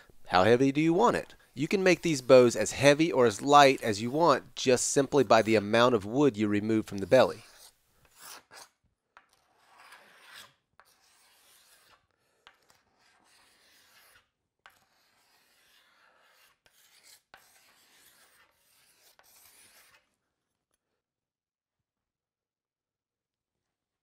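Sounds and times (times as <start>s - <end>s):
hand tool scraping wood: 1.0s - 5.5s, 6.7s - 8.7s, 9.3s - 20.1s.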